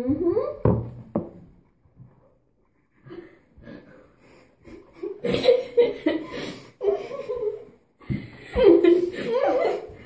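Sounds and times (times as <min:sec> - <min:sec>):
girls laughing: 0:04.6 - 0:10.0.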